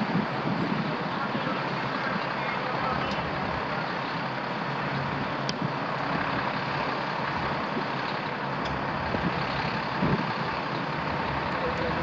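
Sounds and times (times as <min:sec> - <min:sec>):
truck engine running: 0:00.0 - 0:12.0.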